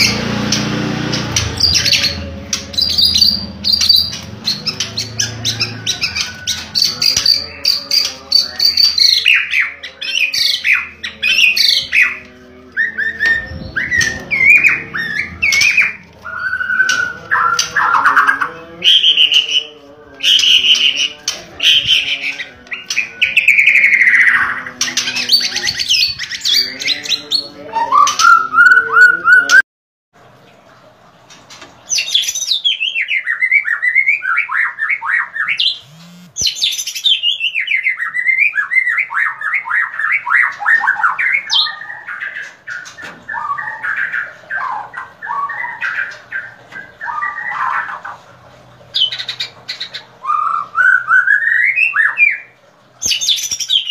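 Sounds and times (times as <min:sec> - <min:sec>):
bird whistling song: 0:01.4 - 0:12.2, 0:12.8 - 0:19.6, 0:27.7 - 0:29.6, 0:49.0 - 0:53.9.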